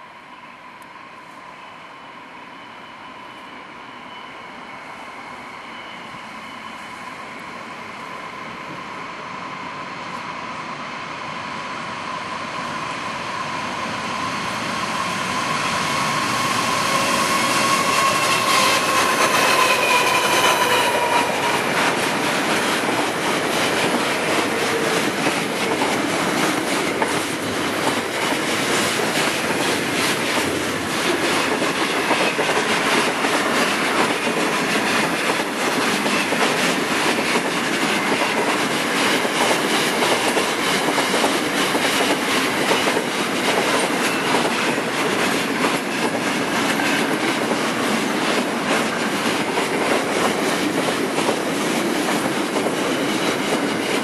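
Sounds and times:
train wheels clattering: 0:15.1 - 0:54.0.

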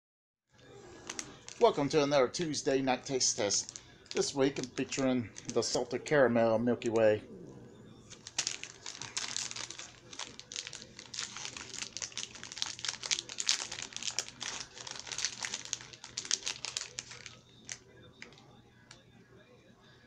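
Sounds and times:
plastic wrapper crinkling: 0:01.0 - 0:02.0, 0:03.0 - 0:06.0, 0:08.1 - 0:18.4.

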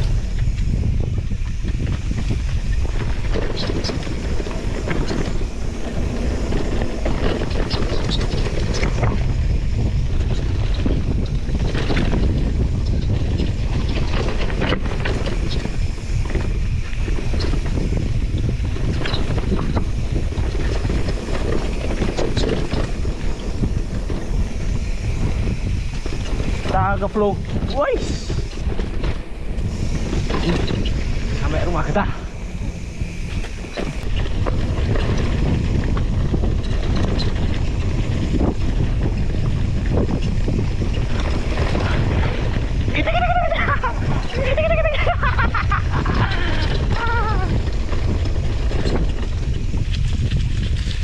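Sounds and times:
bike rattling over rough ground: 0:00.0 - 0:51.0
wind buffeting microphone: 0:00.0 - 0:51.0.

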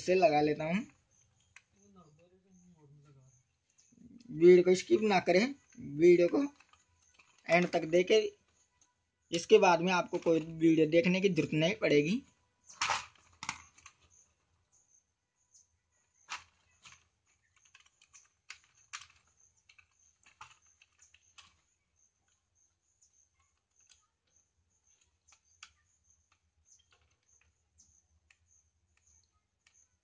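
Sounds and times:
small clicks and taps: 0:16.3 - 0:22.4, 0:23.4 - 0:30.0.

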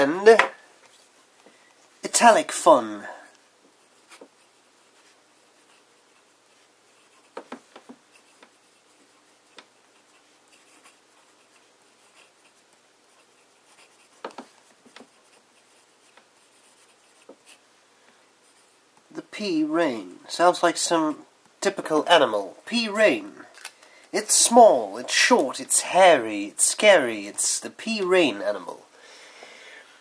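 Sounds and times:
pen nib scratching paper: 0:03.7 - 0:17.6.

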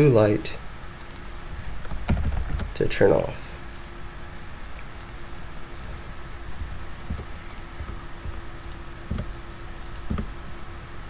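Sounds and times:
faint steady hum: 0:00.0 - 0:11.0
keyboard typing: 0:01.0 - 0:02.8, 0:05.0 - 0:10.3.

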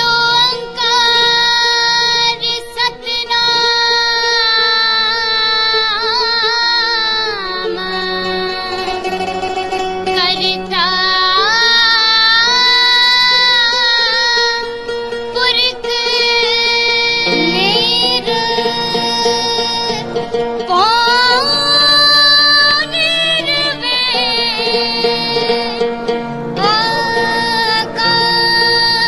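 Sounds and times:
high voice singing held notes: 0:17.2 - 0:20.0
steady drone: 0:17.2 - 0:20.3.

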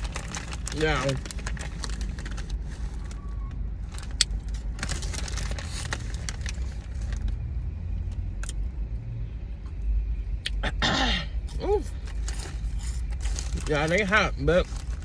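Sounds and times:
foil snack bag crinkling: 0:00.0 - 0:03.2, 0:03.9 - 0:07.4, 0:12.1 - 0:15.0
low rumble of car: 0:00.0 - 0:15.0.

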